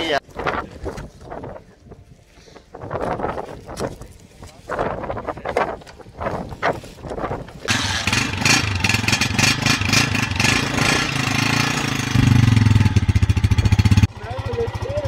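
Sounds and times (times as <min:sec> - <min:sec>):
motorcycle engine starting and idling: 0:07.6 - 0:15.0
motorcycle engine revving: 0:07.7 - 0:15.0.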